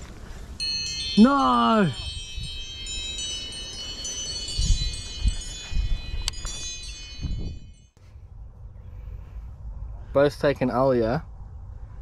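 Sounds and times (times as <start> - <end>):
phone timer alarm chimes: 0.6 - 7.9
wind rumble on microphone: 1.9 - 3.2, 4.3 - 12.0.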